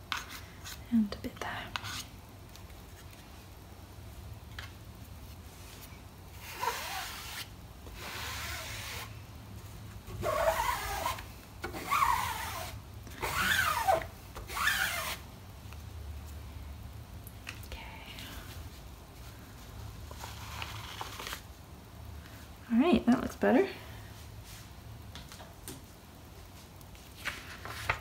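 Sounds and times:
squeegee scraping with squeak: 10.2s - 11.2s, 11.8s - 15.2s.

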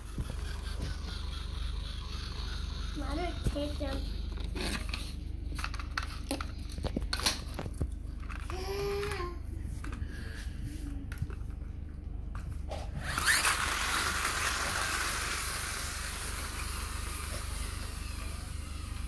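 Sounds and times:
toy robot rolling on concrete: 0.0s - 9.0s, 13.0s - 19.0s.

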